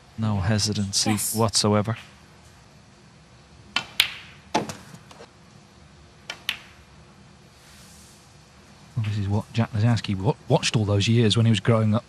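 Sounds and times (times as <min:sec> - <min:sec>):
cue tip hitting ball: 0:06.3 - 0:06.8
snooker balls clicking: 0:06.3 - 0:06.8.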